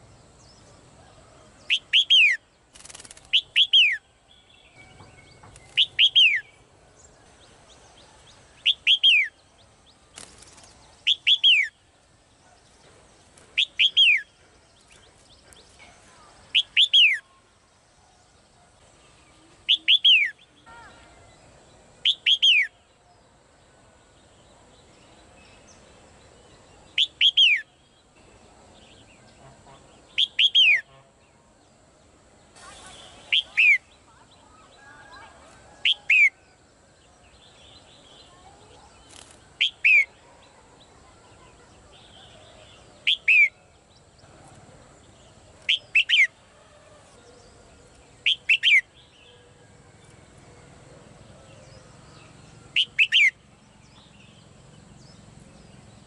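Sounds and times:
bird whistled calls: 0:05.7 - 0:06.6, 0:08.6 - 0:09.4, 0:11.1 - 0:11.8, 0:19.7 - 0:20.4, 0:22.0 - 0:22.7, 0:30.2 - 0:30.9, 0:32.7 - 0:33.9, 0:39.6 - 0:40.2, 0:43.0 - 0:43.6, 0:45.7 - 0:46.3, 0:48.2 - 0:48.9, 0:52.7 - 0:53.4.

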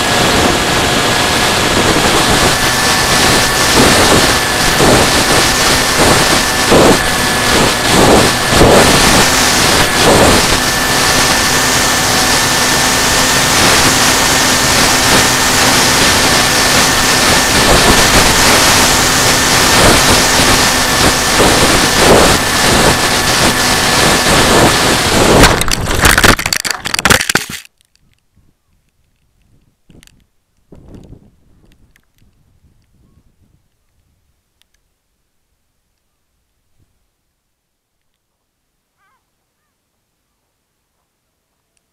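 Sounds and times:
electric motor and propeller whine: 0:00.0 - 0:27.7
plane scraping on ground: 0:00.0 - 0:27.7
wind rushing over camera: 0:00.0 - 0:34.8.

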